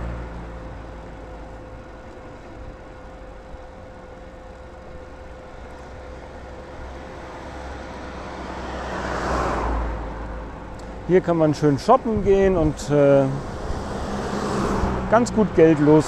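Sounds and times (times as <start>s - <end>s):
bicycle road noise: 0.0s - 16.0s
motor traffic: 0.0s - 16.0s
faint steady whine: 0.3s - 7.8s
wind rumble on microphone: 12.0s - 15.0s.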